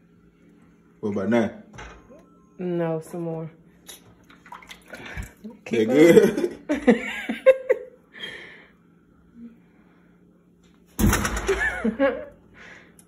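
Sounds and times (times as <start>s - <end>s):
faint steady hum: 0.0s - 13.0s
laughter: 5.9s - 8.0s, 11.5s - 12.4s.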